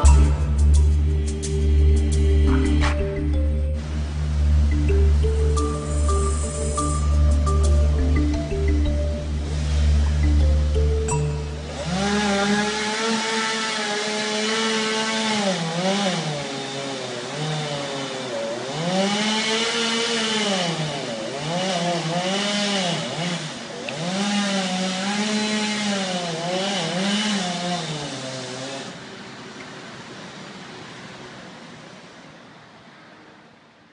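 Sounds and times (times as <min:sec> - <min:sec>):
excavator diesel engine working: 0:00.0 - 0:13.0.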